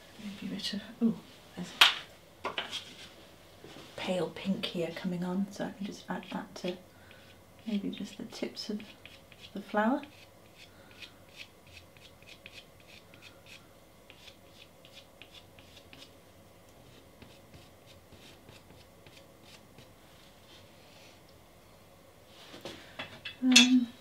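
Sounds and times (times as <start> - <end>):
pastel stick scratching: 6.2 - 16.1, 16.9 - 19.9.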